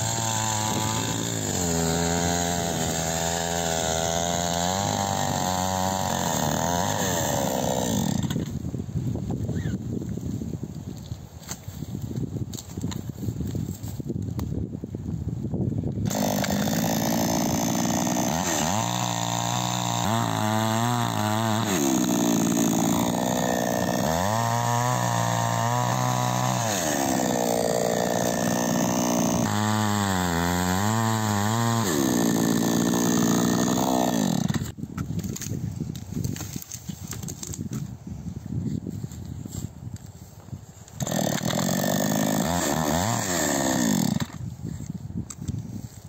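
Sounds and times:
chainsaw cutting through log: 0.0 - 8.6, 16.0 - 35.5, 40.8 - 44.5.

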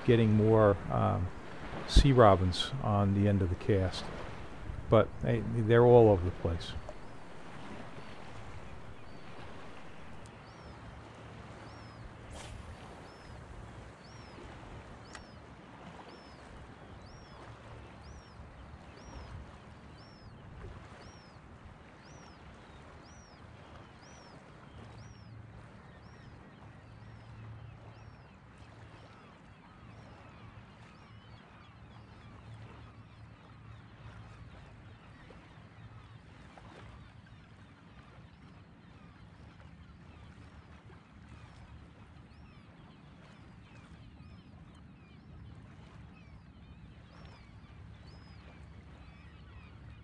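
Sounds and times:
water noise: 0.0 - 10.3
wind: 0.0 - 50.0.

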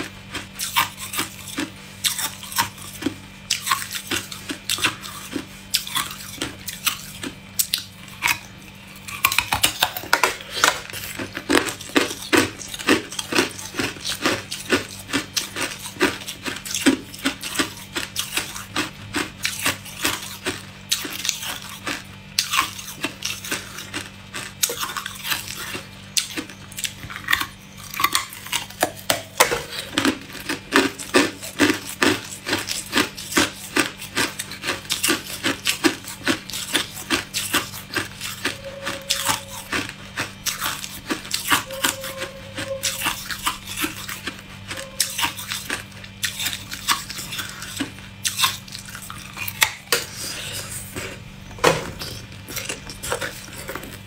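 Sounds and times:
ice crunching between teeth: 0.0 - 54.0.

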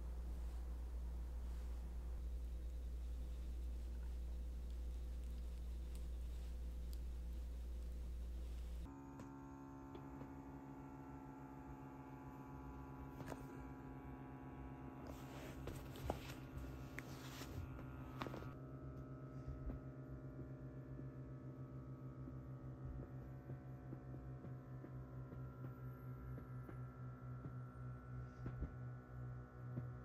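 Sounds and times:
electric hum with low buzz: 0.0 - 30.0
faint rustling: 15.1 - 18.6.

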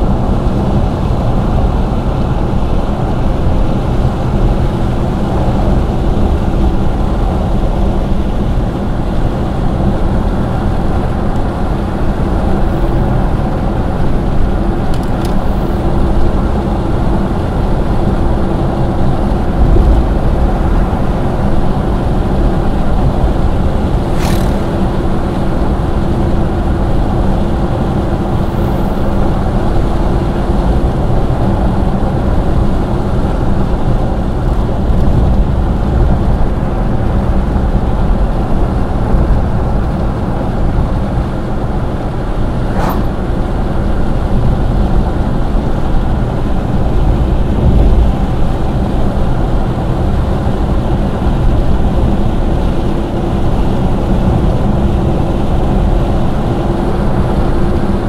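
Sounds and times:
car road and engine noise: 0.0 - 58.0
brief click: 24.2 - 24.6
low hum: 42.1 - 44.8.

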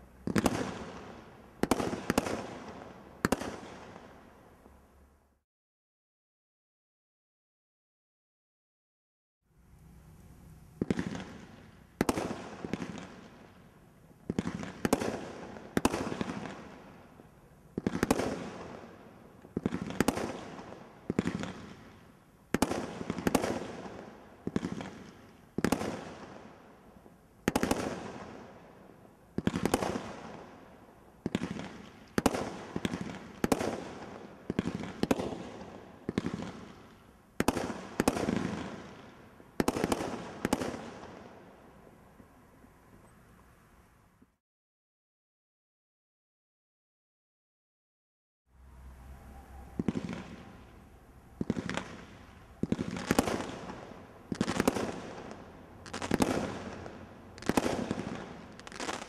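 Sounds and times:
roman candle firework bangs: 51.4 - 59.0.

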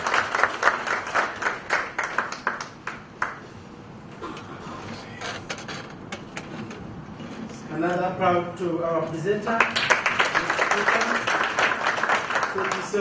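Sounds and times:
audience applause in a hall: 0.0 - 3.5, 9.5 - 13.0.

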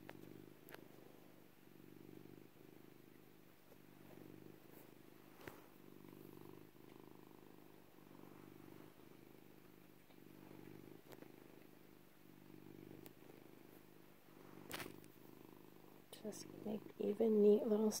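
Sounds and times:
cat purring: 0.0 - 18.0
faint clicks: 9.6 - 11.7, 12.9 - 13.3.

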